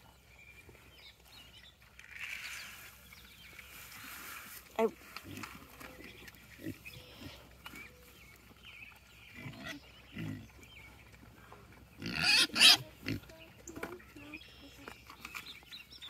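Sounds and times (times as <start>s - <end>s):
pigs grunting: 9.3s - 10.7s, 12.0s - 13.4s
pig squealing: 12.0s - 13.2s.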